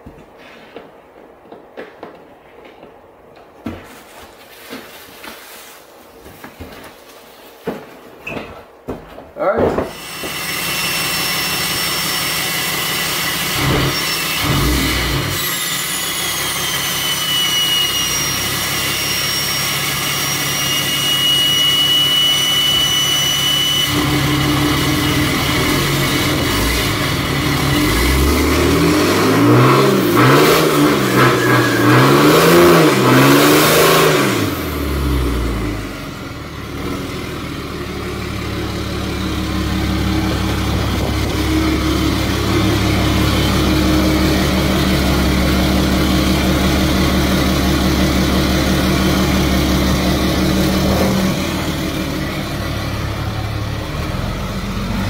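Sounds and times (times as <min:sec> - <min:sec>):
diesel truck engine revving: 0:10.6 - 0:15.6, 0:22.7 - 0:55.0
turbo whistle: 0:15.9 - 0:24.7, 0:30.2 - 0:33.2.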